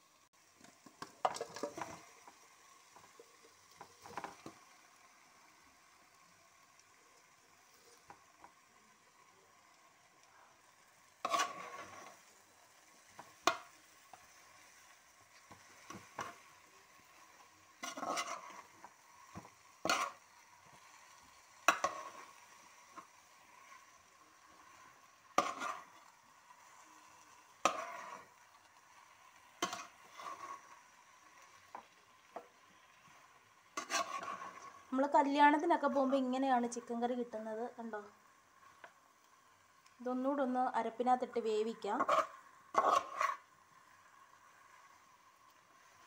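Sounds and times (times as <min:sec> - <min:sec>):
faint sizzle: 0:00.0 - 0:46.0
spatula scraping a pan: 0:01.0 - 0:04.7, 0:11.1 - 0:36.3, 0:41.9 - 0:45.1.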